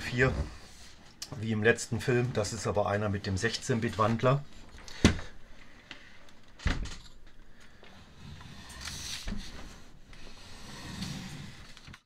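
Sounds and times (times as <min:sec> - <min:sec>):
casing scraping across desk: 0:08.2 - 0:12.0.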